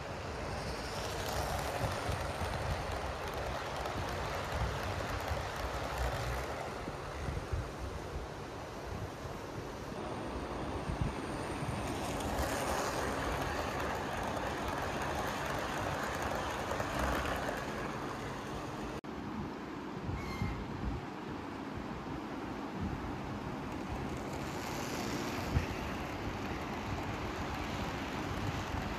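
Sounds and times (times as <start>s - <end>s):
model train rolling rumble: 0.0s - 19.0s, 23.2s - 28.9s.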